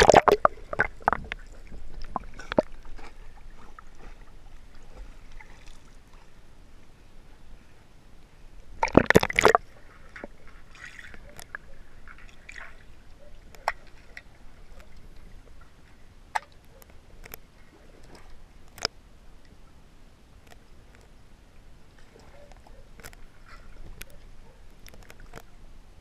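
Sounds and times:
muffled underwater sloshing: 0.0 - 6.5
pool water sloshing: 8.8 - 15.2.

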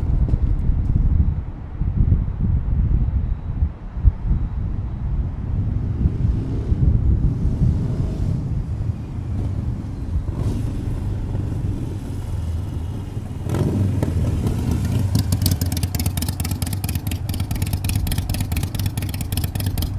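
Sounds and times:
motorcycle exhaust rumble passing: 5.1 - 19.9.

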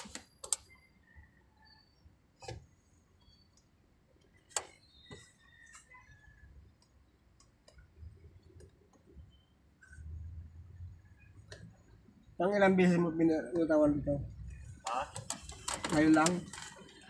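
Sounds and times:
sharp clicks: 0.0 - 0.7.

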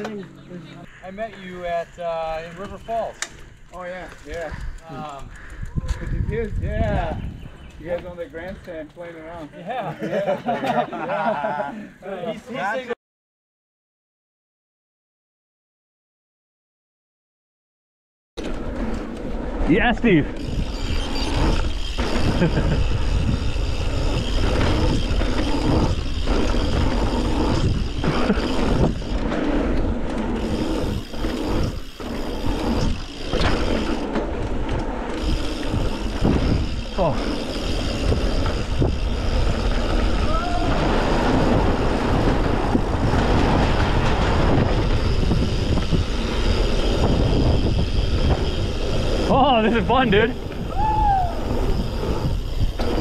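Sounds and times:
bike rattling over bumps: 1.6 - 10.3, 18.4 - 53.0
wind buffeting microphone: 1.7 - 9.0, 19.2 - 53.0
tyres on dirt and rock: 18.4 - 50.7.

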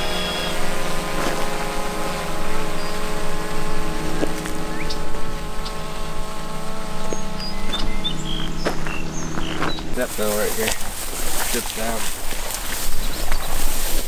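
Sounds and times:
drone propellers buzzing: 0.0 - 14.0.

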